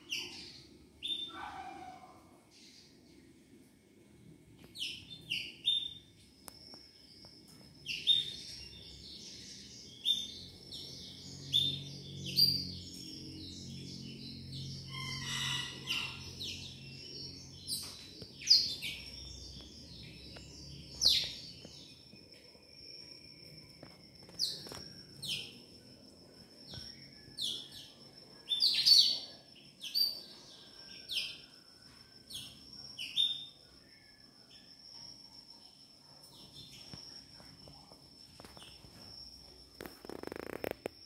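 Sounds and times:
birds chirping: 7.8 - 22.4.

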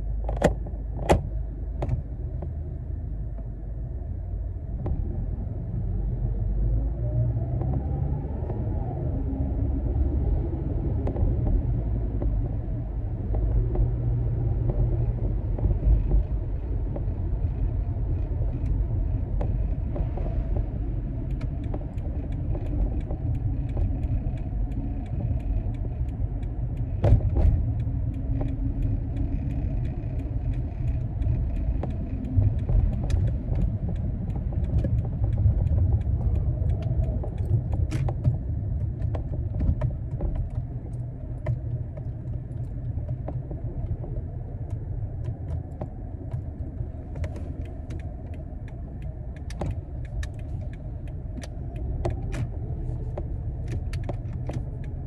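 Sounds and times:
car road and engine rumble: 0.0 - 55.0
light clicks and rattles: 11.0 - 55.0.

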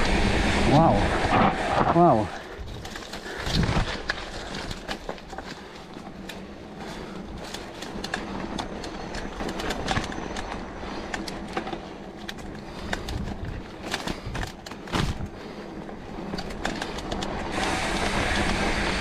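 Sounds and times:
bike rattling over bumps: 0.0 - 19.0
tyre and wind rumble: 0.0 - 19.0.

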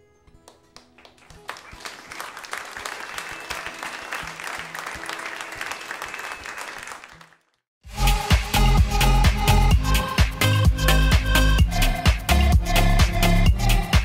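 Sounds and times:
audience applauding: 0.8 - 7.6.

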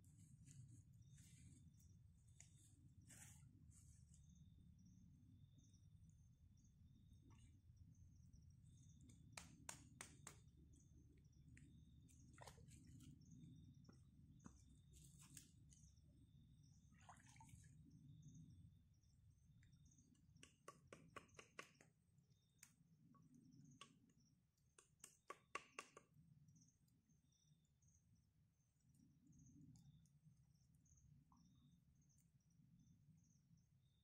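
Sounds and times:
faint clicks and taps: 19.6 - 26.2.

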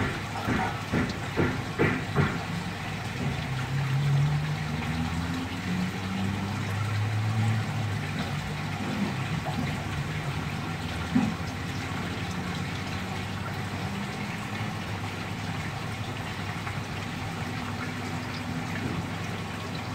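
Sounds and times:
sharp knock: 0.0 - 2.5
running water from pipe: 0.0 - 19.9.

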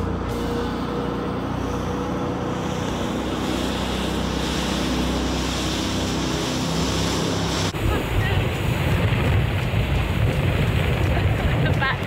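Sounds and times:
boat engine running: 0.0 - 12.0
wind noise: 7.5 - 12.0.

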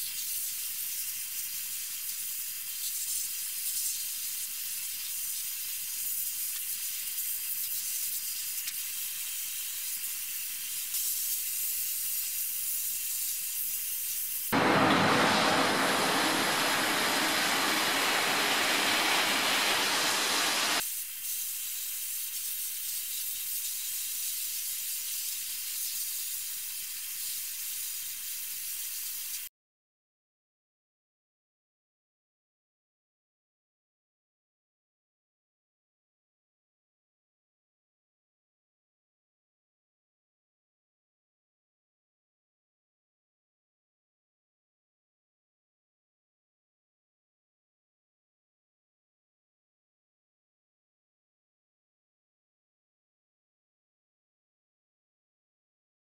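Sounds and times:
abrasive blasting nozzle hiss: 15.3 - 21.5.

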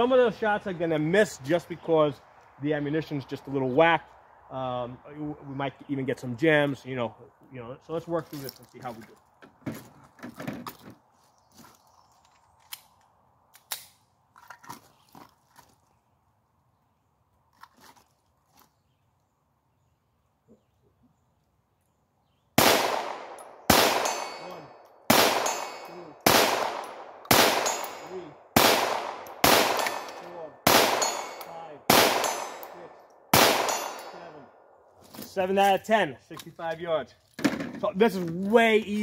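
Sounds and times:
pistol shots with echo: 22.6 - 34.4.

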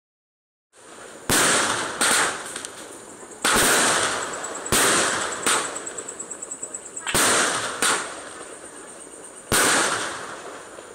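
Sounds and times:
fireworks bangs: 0.8 - 6.2, 7.0 - 8.7, 9.4 - 10.9
fireworks crackling hiss: 0.8 - 10.9.

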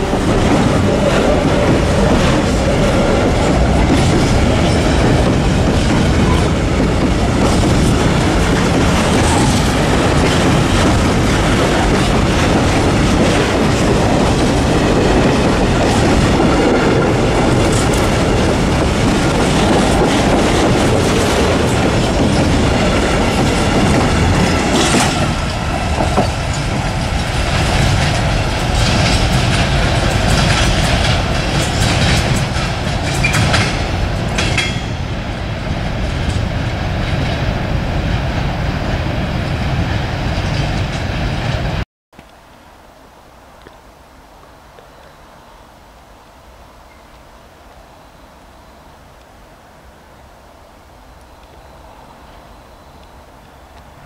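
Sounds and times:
freight train wheels clattering: 0.0 - 41.8.

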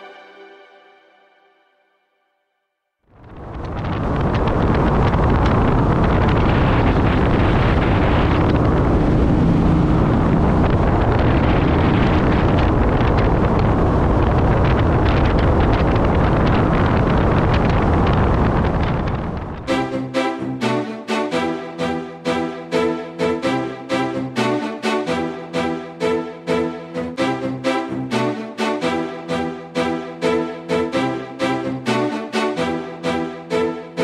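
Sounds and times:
wind buffeting microphone: 3.1 - 20.7
boat engine drone: 3.4 - 34.0.

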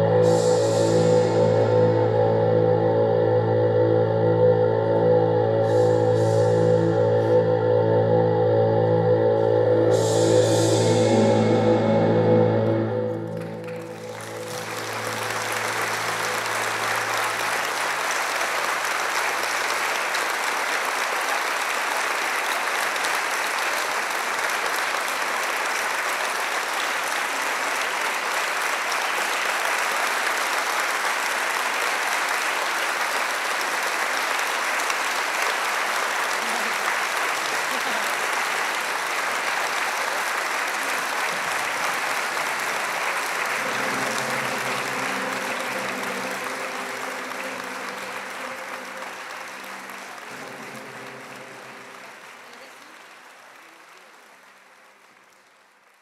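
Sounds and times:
held musical chord: 0.0 - 18.5, 43.4 - 52.4
audience applauding: 13.1 - 56.0.

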